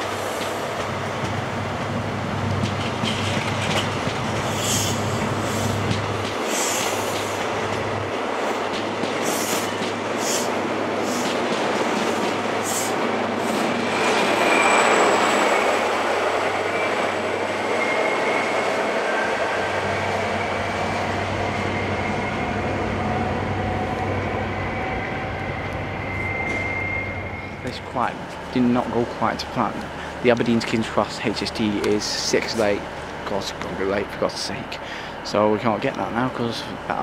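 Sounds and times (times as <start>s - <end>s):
train wheels clicking over rail joints: 0.0s - 14.4s
thin wheel squeal: 14.3s - 15.8s, 24.7s - 27.7s.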